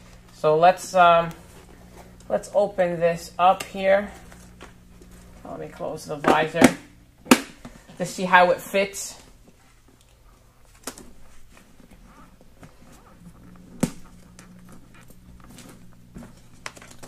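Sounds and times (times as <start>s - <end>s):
helmet rustling and ticking: 9.2s - 17.0s.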